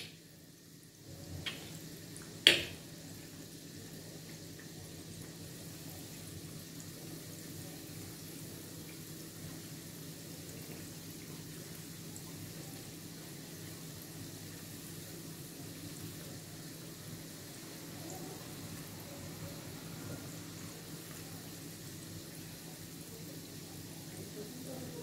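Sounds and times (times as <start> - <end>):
dough frying in hot oil: 0.0 - 25.0.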